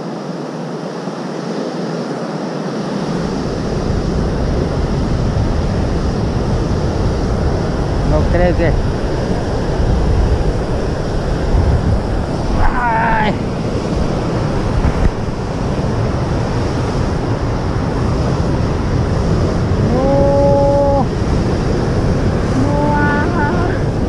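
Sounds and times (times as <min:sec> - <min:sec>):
steady hum-like tone: 0:00.0 - 0:24.0
wind buffeting microphone: 0:02.0 - 0:24.0
surf breaking over rocks: 0:09.8 - 0:24.0
wavering voice-like sound: 0:12.5 - 0:13.4, 0:19.8 - 0:21.1, 0:22.5 - 0:24.0.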